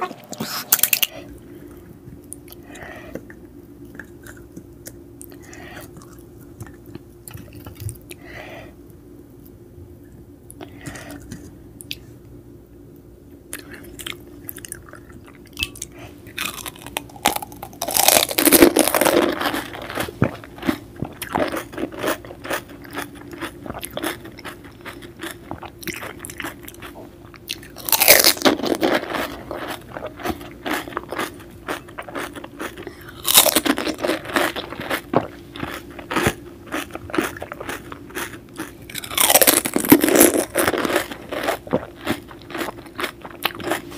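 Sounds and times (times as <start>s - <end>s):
crackly chewing: 0.4s - 8.2s, 13.5s - 43.9s
crunching bites of crisp food: 13.6s - 43.9s.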